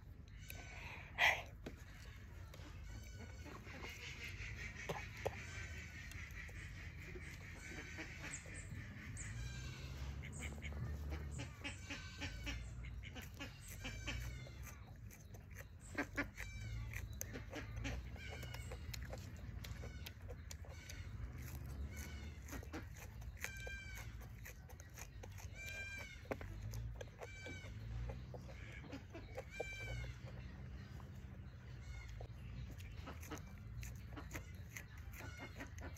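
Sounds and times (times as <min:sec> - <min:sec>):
chickens calling: 0:00.0 - 0:35.9
leafy stems stripped and chewed: 0:00.0 - 0:35.9.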